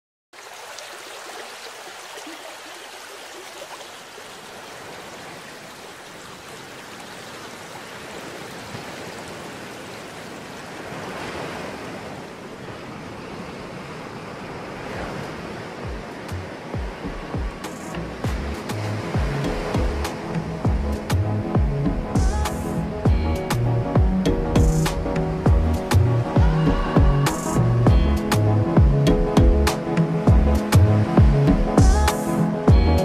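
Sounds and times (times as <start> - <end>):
surf washing onto beach: 0.4 - 21.3.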